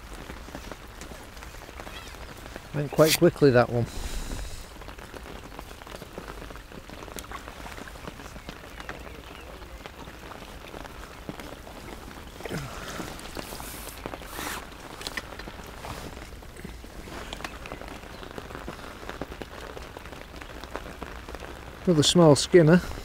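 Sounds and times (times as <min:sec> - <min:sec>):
rustles: 0:00.0 - 0:21.7
rain on umbrella and water: 0:00.0 - 0:23.0.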